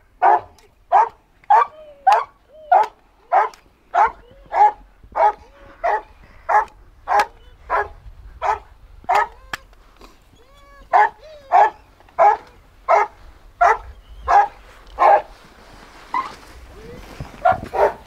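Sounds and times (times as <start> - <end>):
dog barking rhythmically: 0.2 - 9.4, 10.9 - 15.3, 17.4 - 18.0.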